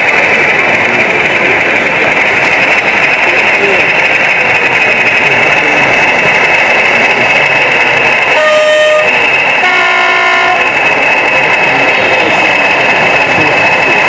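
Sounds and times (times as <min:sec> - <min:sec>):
diesel locomotive engine running: 0:00.0 - 0:14.0
two-tone locomotive horn: 0:08.3 - 0:10.8.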